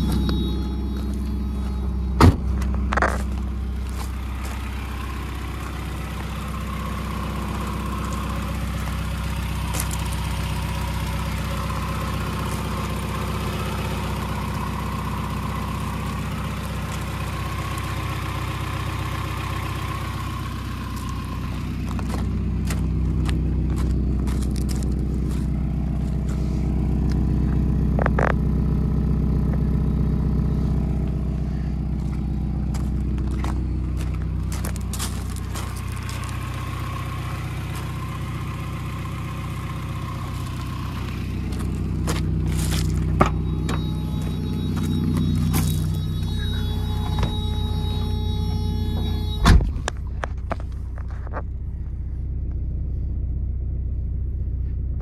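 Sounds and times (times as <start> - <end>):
car engine idling: 0.0 - 55.0
car door shutting: 2.1 - 3.3, 43.0 - 50.4.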